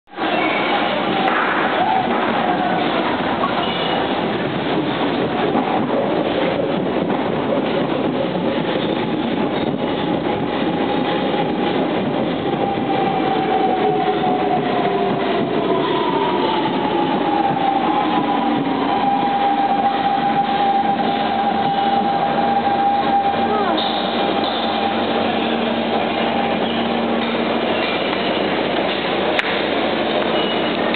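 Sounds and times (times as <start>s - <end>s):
train wheels rumbling on rails: 0.1s - 30.9s.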